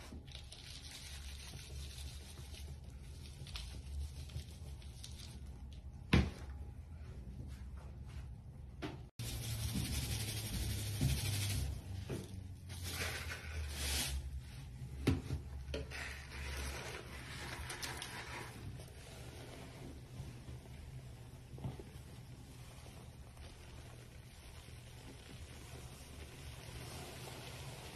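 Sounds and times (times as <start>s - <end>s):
wet foam squishing: 21.8s - 27.9s.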